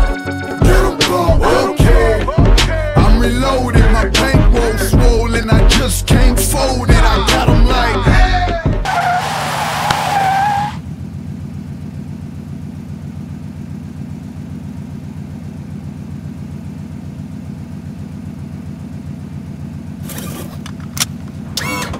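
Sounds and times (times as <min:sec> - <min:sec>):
low engine hum: 0:00.0 - 0:08.9, 0:09.6 - 0:21.9
car tyres squealing: 0:08.8 - 0:11.0.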